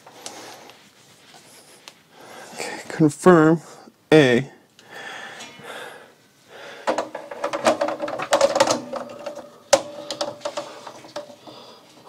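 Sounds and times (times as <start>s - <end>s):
wires rattling and clicking: 6.8s - 12.0s.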